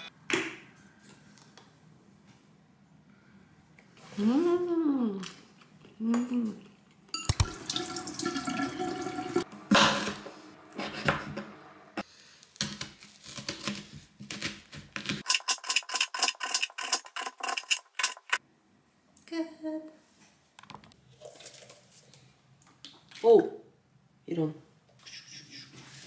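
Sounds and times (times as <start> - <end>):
tap water running into sink: 7.3 - 9.5.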